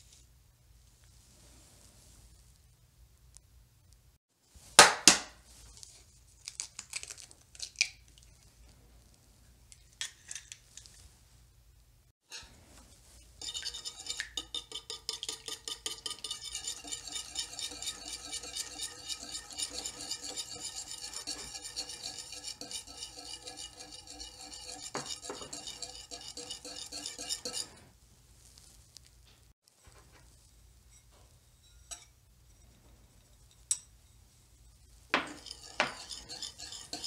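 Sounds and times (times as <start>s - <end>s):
handheld whisk whirring: 13.4s - 27.7s, 35.2s - 37.0s
whisk wires ticking against bowl: 13.4s - 27.7s, 35.2s - 37.0s.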